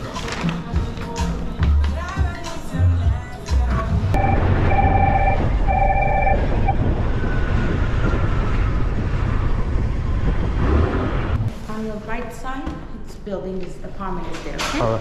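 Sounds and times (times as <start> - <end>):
steady tone: 4.2 - 6.9
wind buffeting microphone: 5.3 - 11.5.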